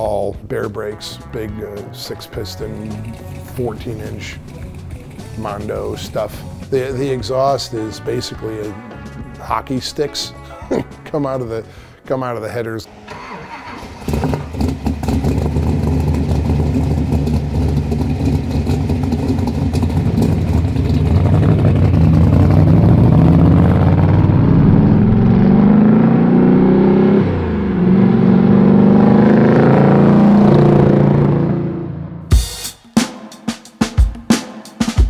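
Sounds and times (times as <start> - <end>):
car engine running hard: 13.0 - 32.3.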